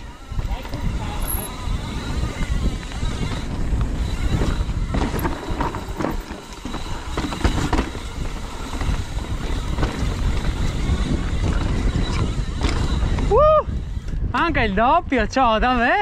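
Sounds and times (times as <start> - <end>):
wind buffeting microphone: 0.0 - 16.0
tyres rumbling on rock and dirt: 0.1 - 14.2
bike knocking and rattling on rocks: 0.3 - 13.3.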